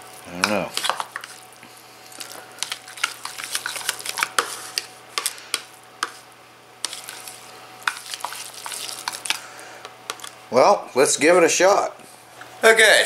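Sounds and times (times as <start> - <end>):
fork stirring spaghetti: 0.0 - 6.2, 6.8 - 10.4.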